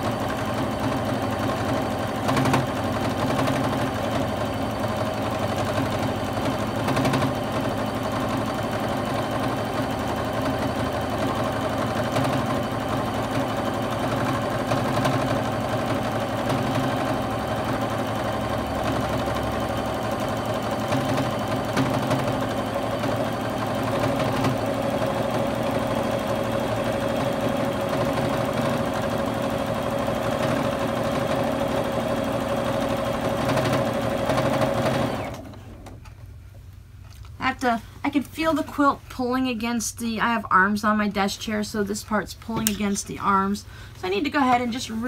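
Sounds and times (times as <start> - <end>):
sewing machine running: 0.0 - 35.9.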